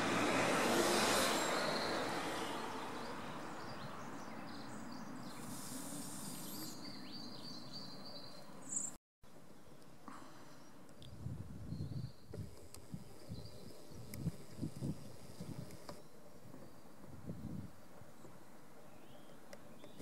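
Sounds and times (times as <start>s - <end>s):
passing vehicle: 0.0s - 4.8s
faint bird chirps: 3.5s - 9.0s.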